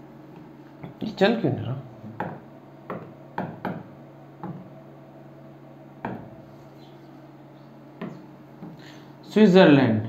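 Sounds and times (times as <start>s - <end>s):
steady low hum: 0.0s - 10.0s
taps on touchscreen glass: 2.2s - 4.7s, 6.0s - 6.3s, 8.0s - 8.8s.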